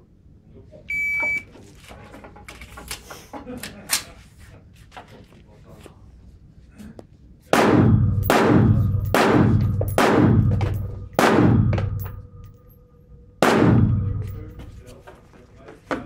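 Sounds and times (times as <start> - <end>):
rifle shots echoing: 7.6 - 12.4, 13.4 - 14.6.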